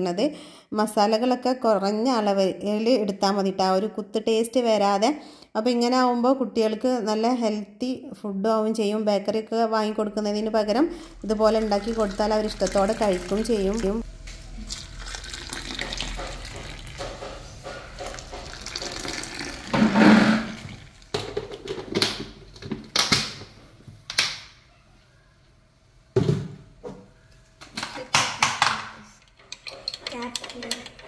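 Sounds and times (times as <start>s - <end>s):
water pouring into cups: 11.0s - 21.2s
cups clinking and knocking: 14.6s - 22.8s.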